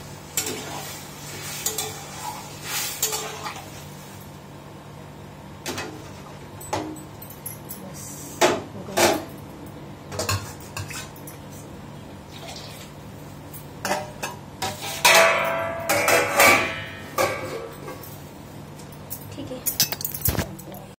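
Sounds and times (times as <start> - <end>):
steel cookware clanking: 1.5 - 3.6, 13.6 - 18.1.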